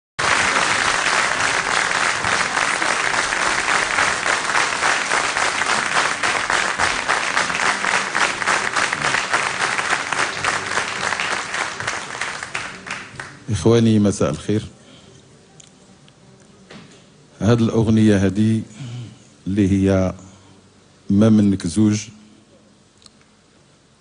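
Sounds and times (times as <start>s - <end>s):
audience applauding: 0.2s - 13.6s.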